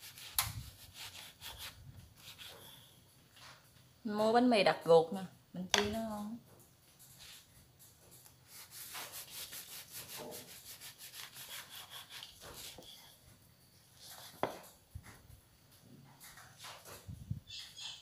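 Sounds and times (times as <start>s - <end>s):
knife sawing through bread crust: 0.0s - 2.7s, 8.5s - 12.8s.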